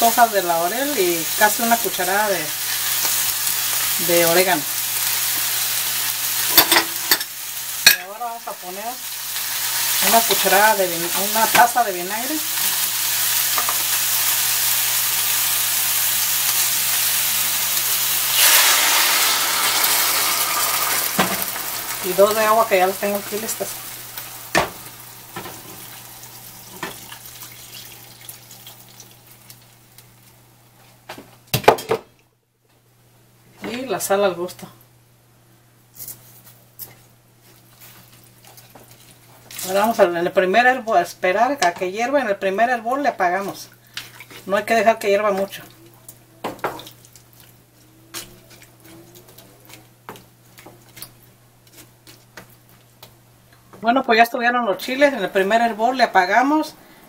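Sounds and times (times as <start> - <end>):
frying sizzle: 0.0 - 30.5, 37.4 - 53.9
water pouring into pan: 25.9 - 29.4.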